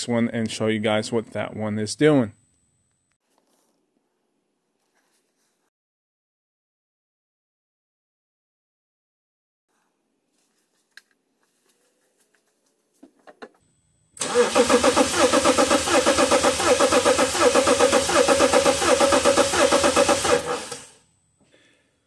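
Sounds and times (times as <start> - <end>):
car engine cranking on starter: 14.2 - 21.0.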